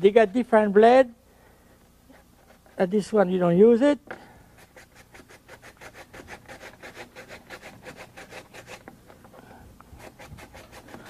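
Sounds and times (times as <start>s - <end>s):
mandoline blade rasping vegetable: 4.6s - 8.9s, 10.0s - 11.0s.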